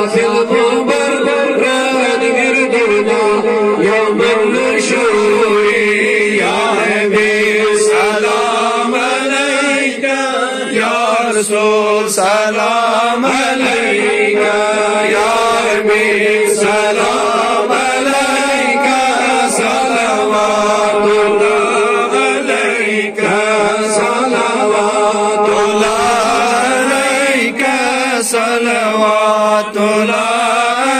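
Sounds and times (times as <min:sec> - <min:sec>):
voice holding steady note: 0:00.0 - 0:09.0, 0:13.4 - 0:28.1
man chanting melody: 0:00.0 - 0:30.9.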